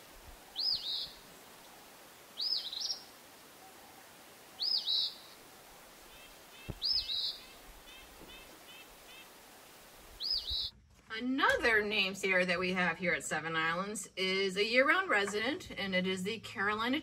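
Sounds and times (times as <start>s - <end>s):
low hiss: 0.0s - 10.7s
faint bird chirps: 0.4s - 9.3s, 10.2s - 10.7s
bird singing two-part song: 0.5s - 1.2s, 2.4s - 3.1s, 4.6s - 5.4s, 6.2s - 9.2s, 10.2s - 10.7s.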